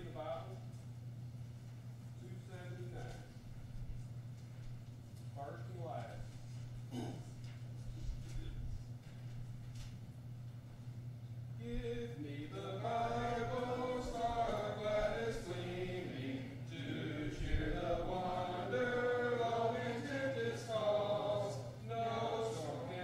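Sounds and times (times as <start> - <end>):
congregation singing a hymn: 11.6 - 23.0.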